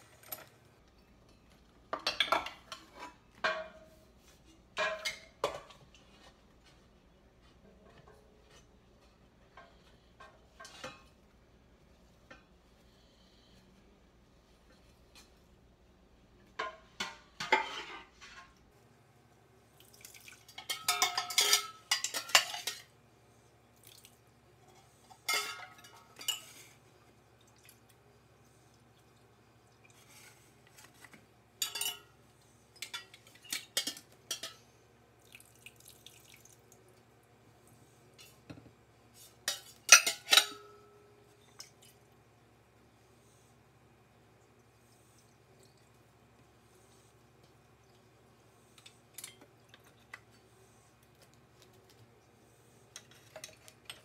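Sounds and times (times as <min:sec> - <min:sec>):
metal pots knocking and clanking: 0:01.3 - 0:04.0, 0:04.6 - 0:06.3, 0:20.5 - 0:22.9, 0:25.2 - 0:26.8, 0:31.6 - 0:32.1, 0:39.4 - 0:40.9
liquid dripping: 0:35.2 - 0:37.0.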